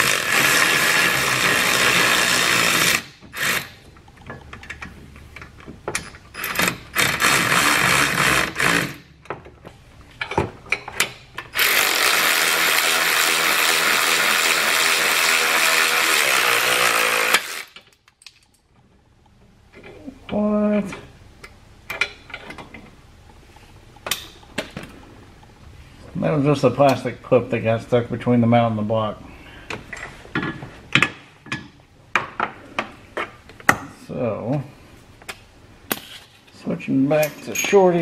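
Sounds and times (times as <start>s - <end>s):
cordless power tools whining: 11.6s - 17.8s.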